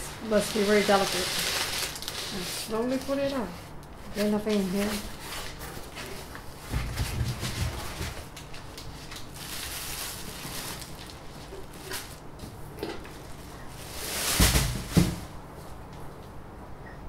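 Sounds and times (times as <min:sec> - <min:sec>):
plastic wrap rustling: 0:00.0 - 0:15.4
rustle and bump: 0:00.3 - 0:15.4
foam block thumping in cardboard box: 0:14.3 - 0:15.3.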